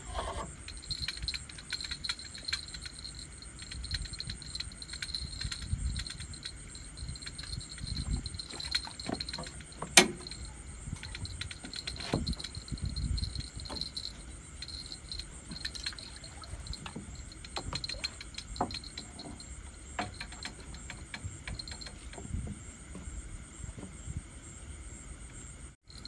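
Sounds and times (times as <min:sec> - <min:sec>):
small hard objects clicking: 0:00.6 - 0:10.4.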